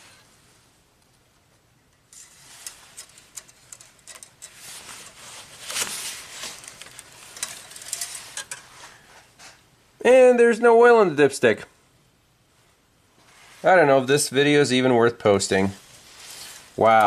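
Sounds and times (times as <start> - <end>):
small metal clicks: 1.9 - 5.2
rag rustling: 2.0 - 9.6.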